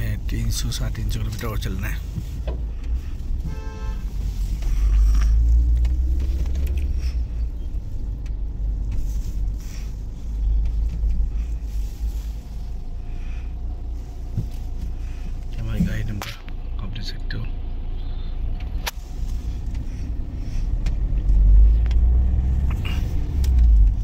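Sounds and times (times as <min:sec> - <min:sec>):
car engine and road noise: 0:00.0 - 0:24.0
car horn toot: 0:03.4 - 0:04.1.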